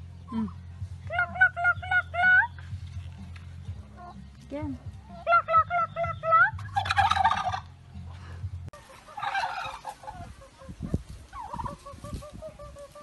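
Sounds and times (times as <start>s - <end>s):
turkeys gobbling: 0.0s - 4.3s, 4.9s - 13.0s
short repeated turkey calls: 0.3s - 2.6s, 5.1s - 7.7s.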